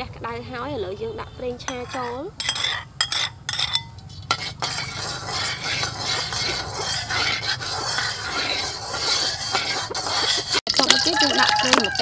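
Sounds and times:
metal spatula scraping a pan: 1.6 - 12.0
hot oil sizzling in a wok: 4.3 - 12.0.

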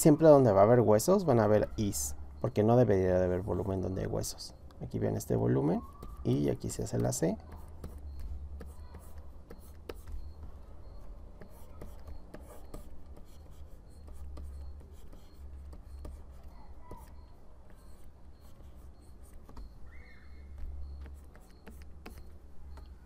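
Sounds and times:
stylus scratching and tapping: 0.2 - 23.0.

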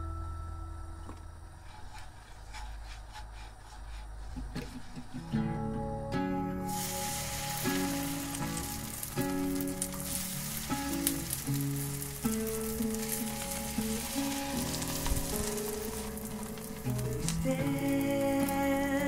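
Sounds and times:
background music: 5.2 - 19.0
batter sizzling in a pan: 6.7 - 19.0.

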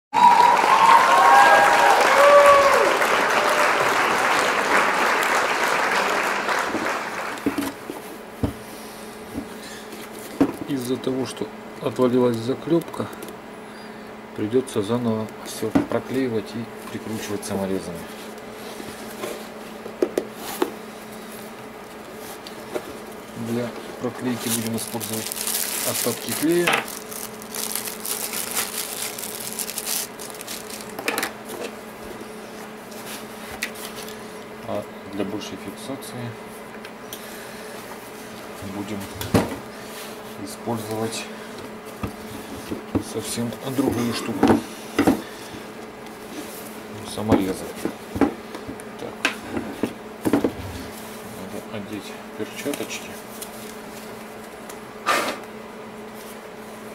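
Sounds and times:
recorded applause: 0.1 - 7.5
faint electrical hum: 0.2 - 56.9
plastic bag crinkling: 24.2 - 31.1.

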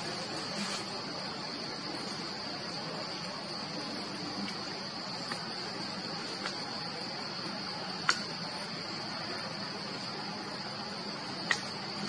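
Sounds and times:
insects buzzing: 0.0 - 12.0
faint ticks: 11.4 - 12.0.

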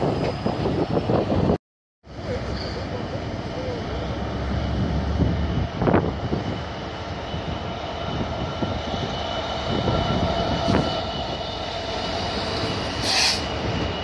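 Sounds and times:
diesel locomotive engine rumble: 0.0 - 14.0
wagons rumbling over rails: 0.0 - 14.0.

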